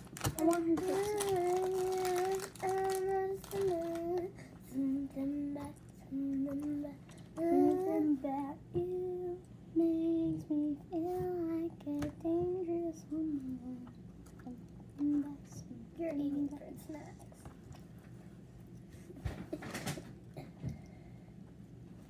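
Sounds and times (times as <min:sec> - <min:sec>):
girl singing: 0:00.2 - 0:17.2.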